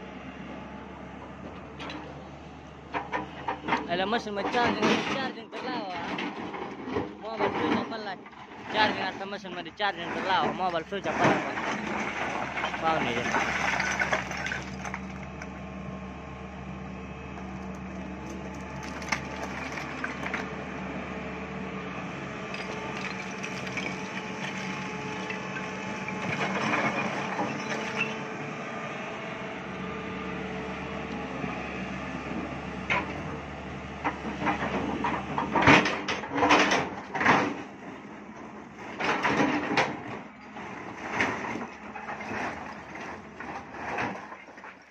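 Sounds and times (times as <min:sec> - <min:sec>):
excavator diesel engine running: 0:00.0 - 0:44.9
bucket crunching into rock: 0:10.3 - 0:15.4, 0:18.2 - 0:20.5, 0:22.5 - 0:28.0.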